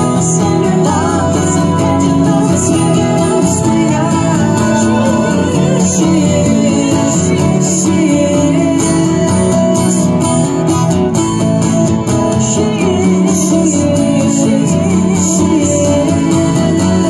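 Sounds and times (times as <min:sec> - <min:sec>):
acoustic guitars strumming: 0:00.0 - 0:17.0.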